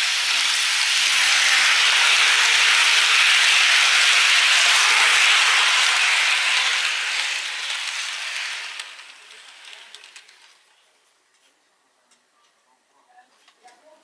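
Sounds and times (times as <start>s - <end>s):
model train wheels rattling on rails: 0.0s - 10.8s.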